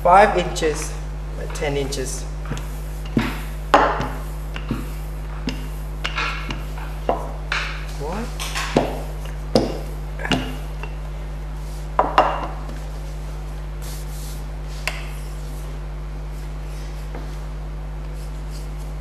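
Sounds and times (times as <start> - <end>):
steady low hum: 0.0 - 19.0
rolling pin knocking on metal table: 12.0 - 12.6.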